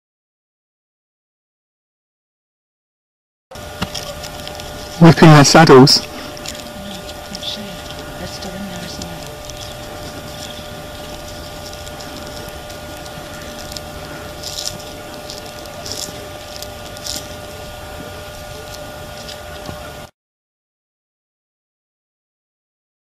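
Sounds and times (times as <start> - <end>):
microphone hiss and hum: 3.6 - 20.1.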